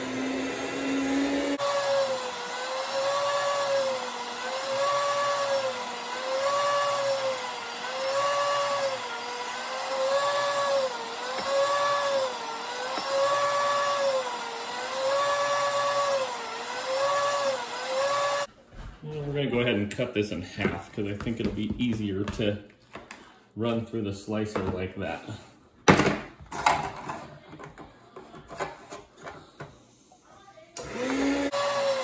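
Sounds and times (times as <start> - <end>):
meat slicer motor whining: 0.0 - 18.5, 30.8 - 32.0.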